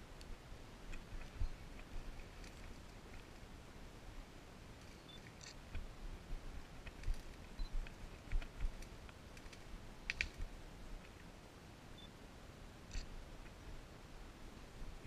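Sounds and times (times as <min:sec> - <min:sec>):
light clicks and crackles: 0:00.2 - 0:03.5, 0:04.8 - 0:05.9, 0:06.8 - 0:11.3, 0:12.9 - 0:13.6.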